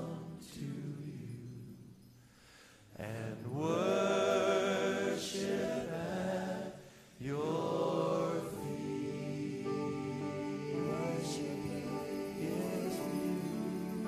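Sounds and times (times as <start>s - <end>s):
voices singing worship song: 0.0s - 14.0s.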